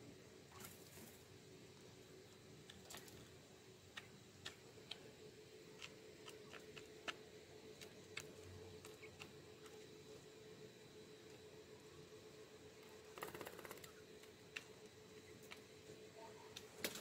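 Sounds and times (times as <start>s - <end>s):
faint steady hum: 0.0s - 17.0s
birds pecking ticks: 0.5s - 10.2s, 12.8s - 17.0s.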